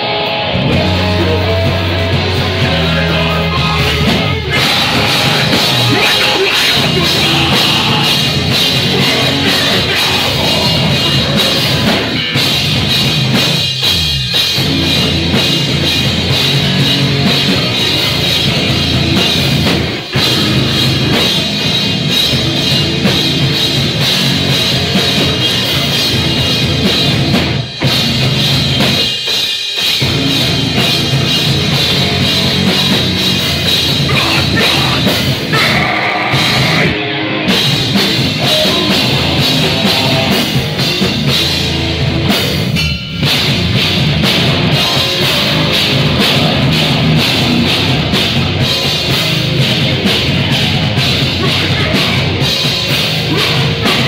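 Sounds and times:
distorted guitars: 0.0 - 54.0
heavy metal band playing: 0.0 - 54.0
pounding drum kit: 0.0 - 54.0
screamed vocals: 3.1 - 12.2, 34.1 - 37.0.

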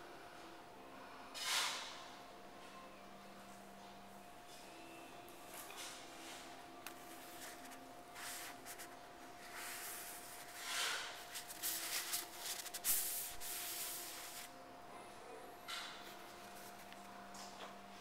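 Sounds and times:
towel rubbing on stone countertop: 7.1 - 14.5.

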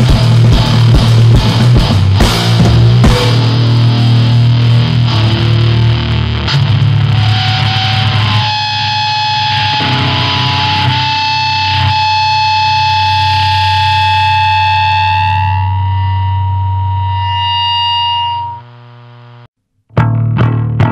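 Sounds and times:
distorted band noise: 0.0 - 20.2
high amplifier feedback tone: 0.0 - 20.9.

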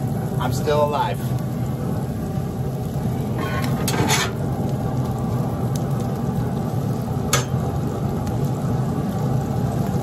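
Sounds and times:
low rumble: 1.2 - 10.0
metal spatulas scraping griddle: 3.4 - 4.4.

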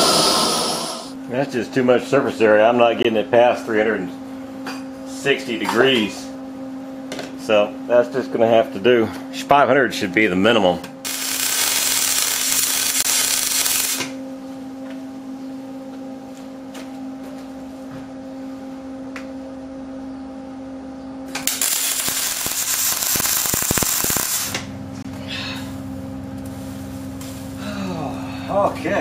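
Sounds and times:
welder arc sizzling and crackling: 0.0 - 1.1, 11.0 - 14.2, 21.3 - 24.7
steady low hum: 0.0 - 29.0.

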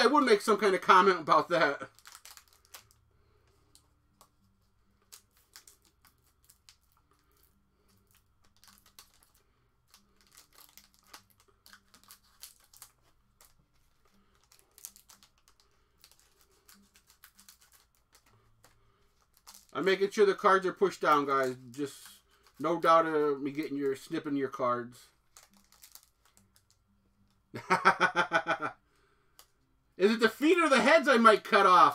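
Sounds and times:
foil packs crinkling: 0.0 - 24.6, 25.2 - 26.9
scissors snipping foil wrappers: 5.1 - 19.8.

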